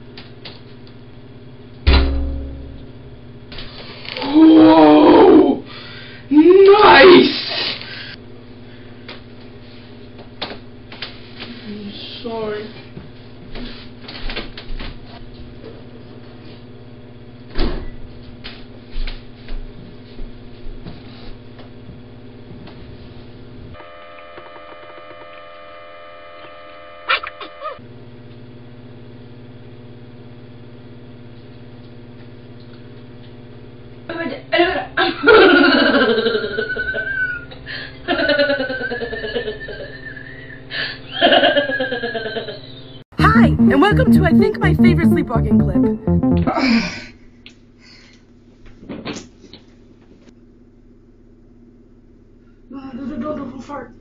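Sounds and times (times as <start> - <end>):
steady electrical hum: 0.0 - 4.6.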